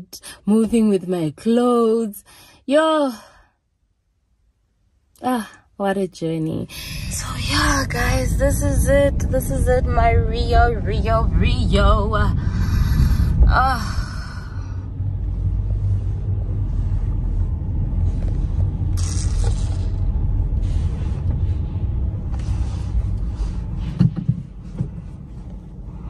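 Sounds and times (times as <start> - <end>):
low rumble: 6.6 - 26.0.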